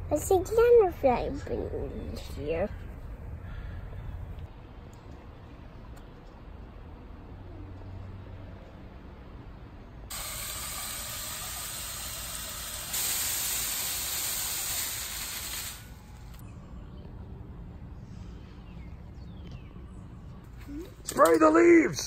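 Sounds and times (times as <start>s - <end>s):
sprayer hissing: 10.1s - 16.4s.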